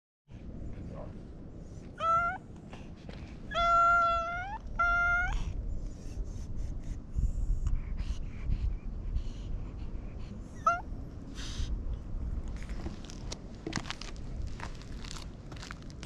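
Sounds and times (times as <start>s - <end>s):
cat meowing: 2.0s - 2.4s, 3.5s - 5.5s.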